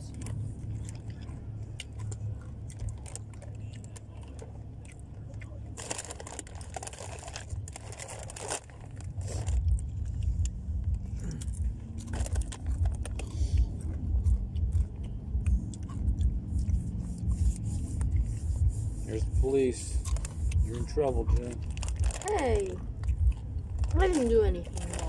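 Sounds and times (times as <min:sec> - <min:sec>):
crunching tortilla chips: 0:00.0 - 0:18.2, 0:20.0 - 0:25.0
low rumble: 0:00.0 - 0:25.0
snack bags rustling: 0:05.8 - 0:10.3, 0:11.0 - 0:14.8, 0:20.1 - 0:25.0.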